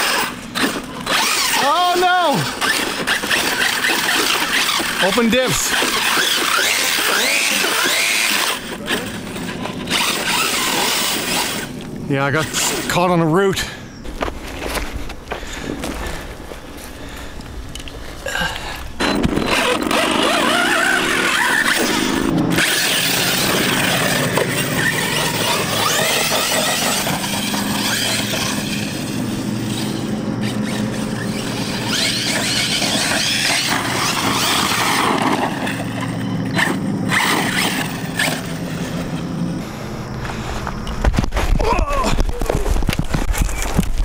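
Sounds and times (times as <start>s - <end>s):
electric motor whine: 0.0s - 13.0s, 18.8s - 41.7s.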